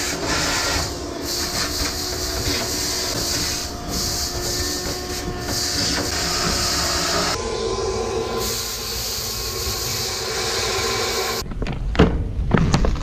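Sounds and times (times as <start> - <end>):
shop vacuum motor whine: 0.0 - 11.4
air rushing into vacuum nozzle: 2.7 - 11.4.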